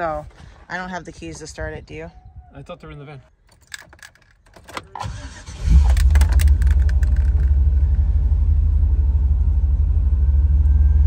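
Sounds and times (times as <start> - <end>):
keys clinking in ignition: 3.4 - 8.0
starter cranking: 3.5 - 8.0.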